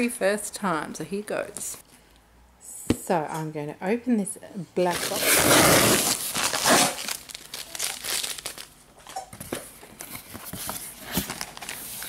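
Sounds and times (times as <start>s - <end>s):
paper crinkling: 4.9s - 8.8s, 10.1s - 12.0s.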